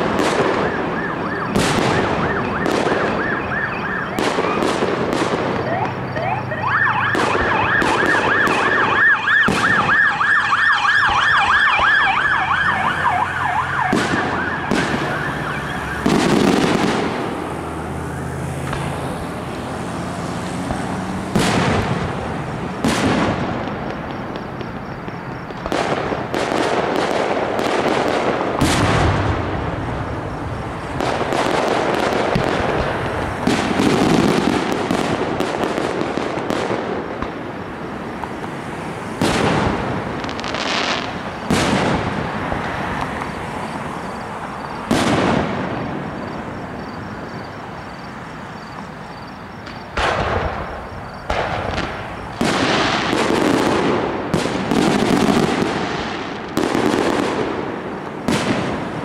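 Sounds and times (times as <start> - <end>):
firework crackling: 0.0 - 10.3, 11.0 - 46.5, 49.6 - 59.0
emergency siren yelping: 0.0 - 20.6.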